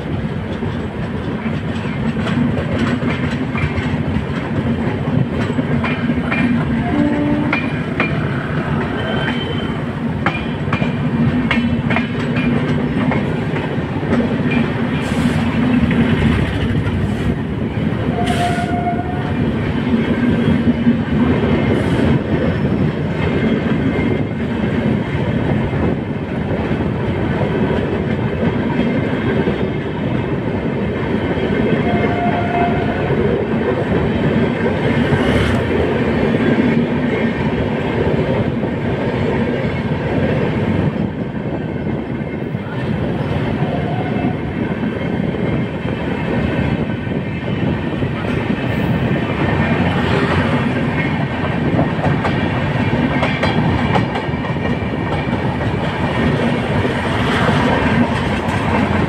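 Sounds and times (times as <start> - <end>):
train rumbling past: 0.0 - 59.0
wheels clacking over rail joints: 0.1 - 26.0, 49.4 - 59.0
train horn beeps: 6.8 - 7.7, 18.1 - 19.4, 31.8 - 33.2, 43.6 - 44.5.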